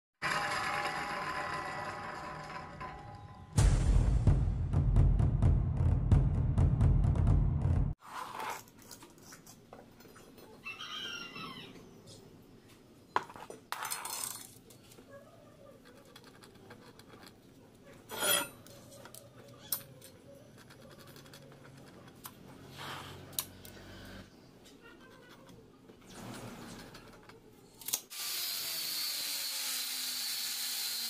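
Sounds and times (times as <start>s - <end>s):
steel pieces clinking: 18.1s - 18.6s
ringing metal scrape: 18.1s - 18.7s.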